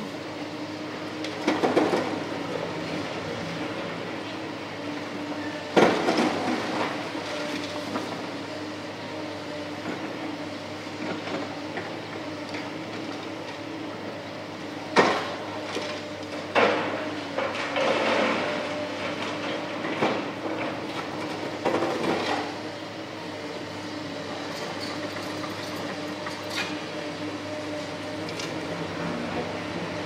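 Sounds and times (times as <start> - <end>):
excavator diesel engines running: 0.0 - 30.0
crunching and clattering debris: 16.6 - 20.7.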